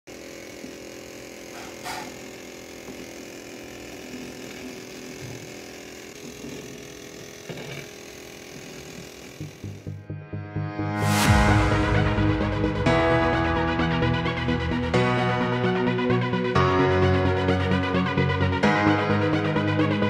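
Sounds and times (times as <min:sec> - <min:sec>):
small motor humming: 0:00.1 - 0:10.0
pulsing music beat: 0:09.9 - 0:16.2.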